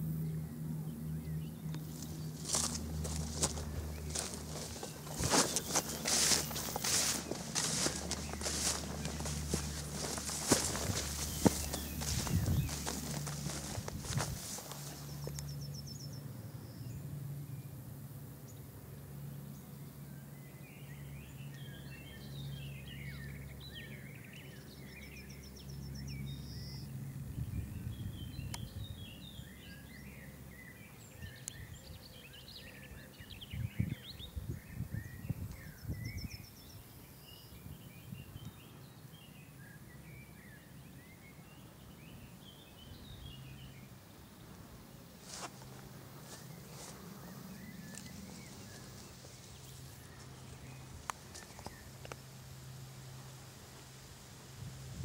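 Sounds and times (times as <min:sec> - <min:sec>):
low background rumble: 0:00.1 - 0:17.7
birds chirping and singing: 0:01.0 - 0:16.2.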